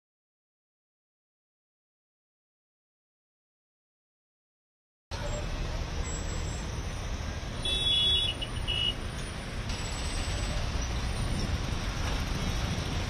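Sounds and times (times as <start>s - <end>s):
traffic engine rumble: 5.1s - 13.0s.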